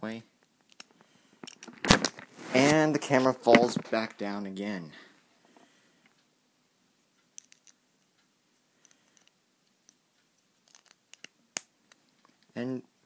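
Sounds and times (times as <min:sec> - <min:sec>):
small plastic parts clicking: 0:00.4 - 0:02.2, 0:07.4 - 0:07.8, 0:08.8 - 0:10.0, 0:10.6 - 0:12.5.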